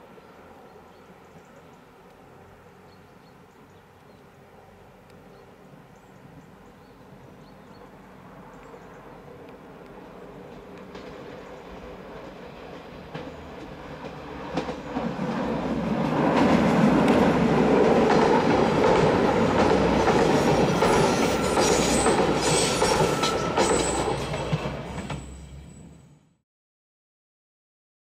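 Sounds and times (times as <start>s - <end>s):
train passing on bridge: 0.0s - 26.4s
wheels clacking over rail joints: 9.8s - 25.8s
high-pitched wheel squeals: 20.3s - 24.4s.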